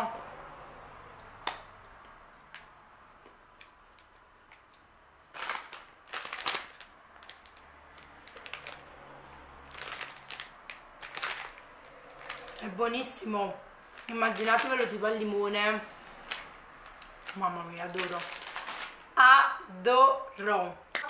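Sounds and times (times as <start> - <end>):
crunching of biscuits being chewed: 1.5 - 8.9, 9.6 - 12.6, 16.1 - 19.1
paper snack bag crinkling: 5.3 - 8.9, 9.6 - 13.2, 13.8 - 15.3, 16.0 - 19.1.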